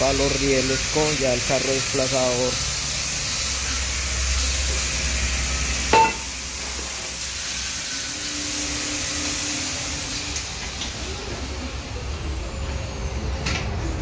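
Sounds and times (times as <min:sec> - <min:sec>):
workshop hiss: 0:00.0 - 0:14.0
metallic clank: 0:05.9 - 0:06.9.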